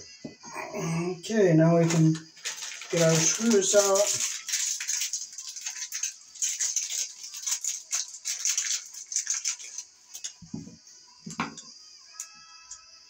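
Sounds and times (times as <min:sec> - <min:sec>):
small screws clicking and rattling: 0:01.8 - 0:10.4.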